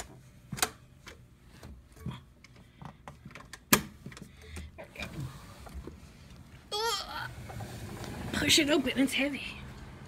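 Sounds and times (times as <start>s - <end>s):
sliding door rumble: 7.3s - 10.0s.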